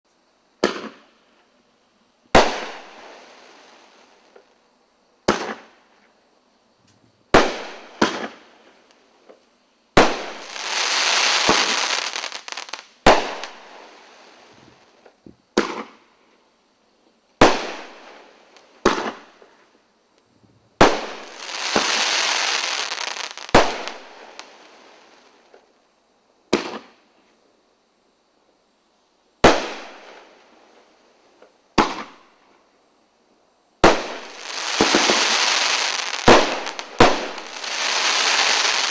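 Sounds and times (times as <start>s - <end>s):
firework dense hiss: 0.1s - 38.9s
firework bangs: 0.6s - 1.0s, 5.2s - 5.7s, 7.3s - 8.4s, 10.0s - 13.8s, 15.5s - 16.0s, 18.8s - 19.3s, 20.8s - 24.5s, 26.5s - 27.0s, 29.4s - 30.2s, 31.8s - 32.2s, 33.8s - 38.9s.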